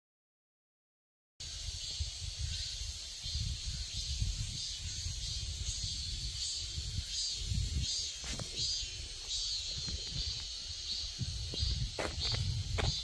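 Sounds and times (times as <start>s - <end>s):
steady high hiss: 1.4s - 13.0s
wind rumbling on microphone: 1.4s - 13.0s.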